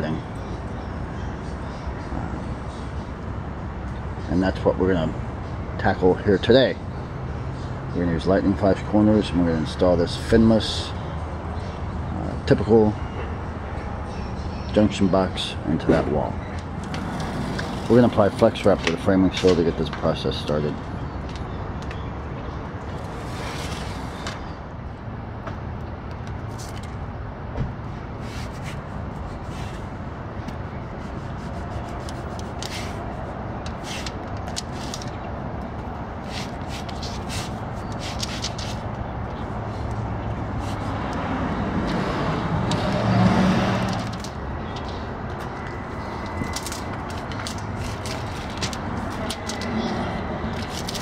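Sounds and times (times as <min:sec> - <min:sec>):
low rumble of road traffic: 0:00.0 - 0:51.0
vehicle passing: 0:15.8 - 0:19.0, 0:28.9 - 0:51.0
tape crinkling and rustling: 0:30.5 - 0:35.3, 0:36.2 - 0:39.9, 0:43.8 - 0:51.0
membrane crinkling: 0:46.0 - 0:51.0.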